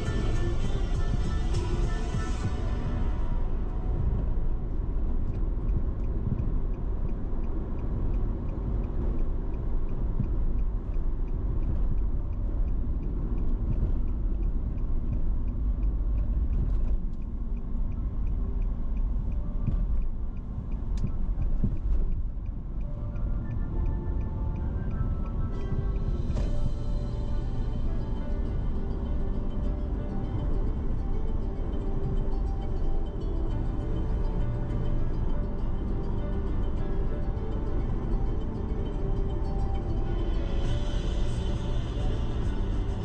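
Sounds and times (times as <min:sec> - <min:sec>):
car road and wind noise: 0:00.0 - 0:43.0.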